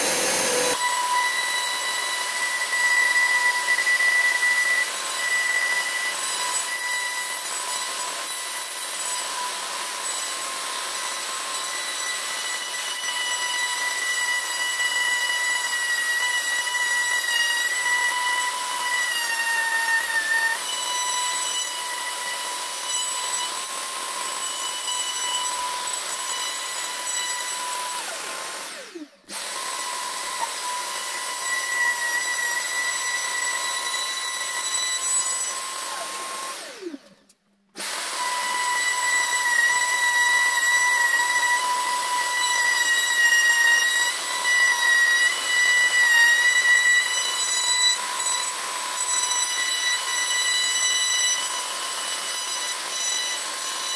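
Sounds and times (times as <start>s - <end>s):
shop vacuum running: 0.0s - 0.9s
router high whine: 0.0s - 53.9s.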